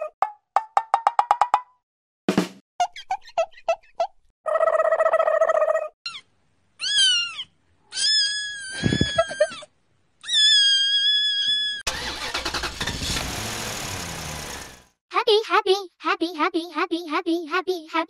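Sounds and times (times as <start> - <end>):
kitten meowing: 6.8 - 9.5, 10.2 - 11.8
car engine and road noise: 11.9 - 15.0.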